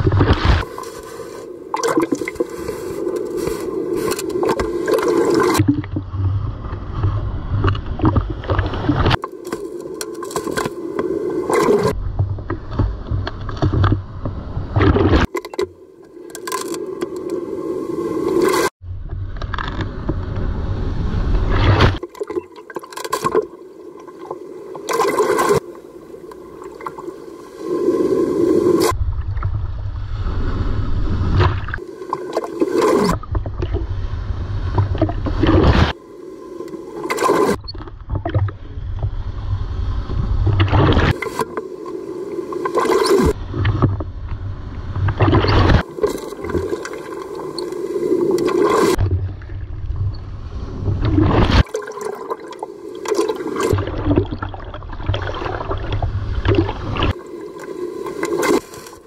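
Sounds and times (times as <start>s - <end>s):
water splashing over camera: 0.0s - 17.4s, 21.5s - 29.7s, 34.7s - 39.2s, 40.4s - 44.1s, 45.0s - 50.2s, 50.8s - 59.0s
waves breaking: 0.0s - 18.7s, 20.5s - 59.0s
low water rumble: 0.0s - 59.0s.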